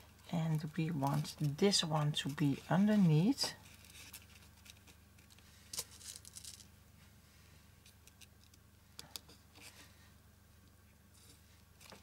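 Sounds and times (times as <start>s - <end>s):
ribbon rustling and crinkling: 0.1s - 6.7s.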